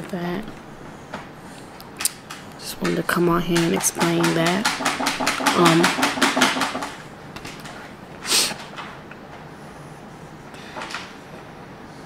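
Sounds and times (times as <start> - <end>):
rapid clicks: 2.9 - 7.0.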